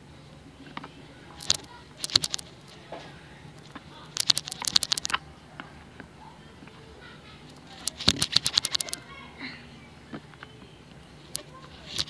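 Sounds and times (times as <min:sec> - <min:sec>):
slime sticky clicks and crackles: 0:01.4 - 0:02.7, 0:03.6 - 0:05.2, 0:07.5 - 0:09.0.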